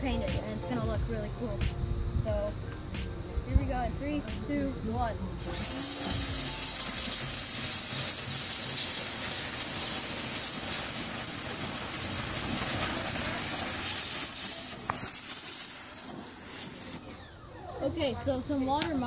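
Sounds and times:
pressure washer spraying: 5.4 - 17.3.

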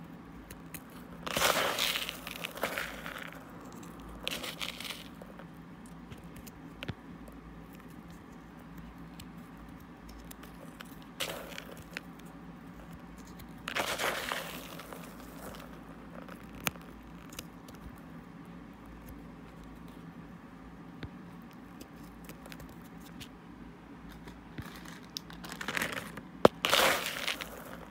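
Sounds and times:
fingers crushing mothball crystals: 0.0 - 20.1, 21.1 - 23.4, 24.0 - 27.9.

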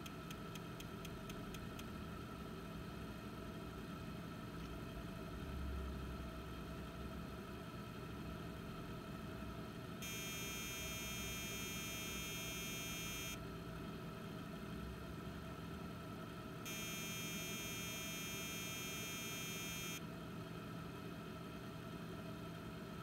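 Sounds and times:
computer low hum: 0.0 - 23.0
long high-pitched electronic tones: 10.0 - 13.4, 16.7 - 20.0.

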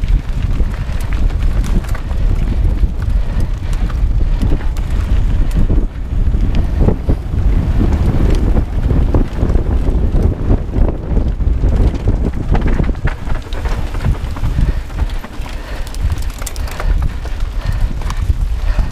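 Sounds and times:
bike clicks and rattles: 0.0 - 18.9
wind buffeting microphone: 0.0 - 18.9
tyre rumble on dirt: 6.6 - 18.9.

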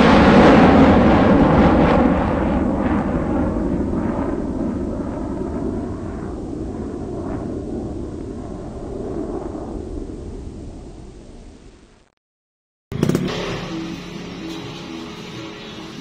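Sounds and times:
wind rushing over microphone: 0.0 - 11.9
motorcycle engine running: 12.9 - 16.0.

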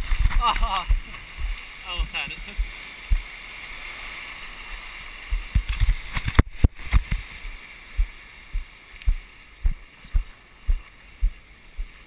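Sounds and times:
shallow surf washing: 0.0 - 12.0
low thumps and knocks: 8.0 - 12.0.

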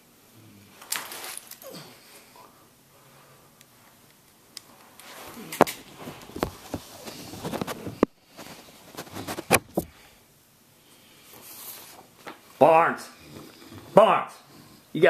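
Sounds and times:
rustling handling noise: 4.7 - 10.0.

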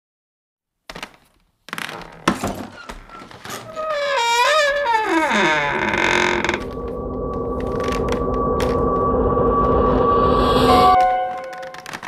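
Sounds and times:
eerie wavering wail: 3.7 - 12.0.

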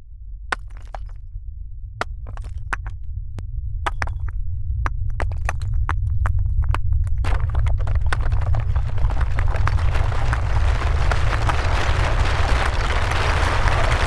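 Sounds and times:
deep rumble: 0.0 - 14.0.

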